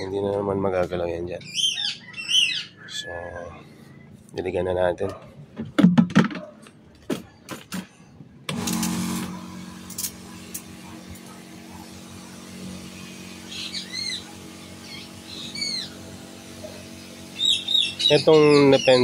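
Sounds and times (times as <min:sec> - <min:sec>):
bird chirping: 0:01.4 - 0:04.2, 0:13.4 - 0:16.0, 0:17.4 - 0:19.0
water spraying: 0:08.5 - 0:19.0.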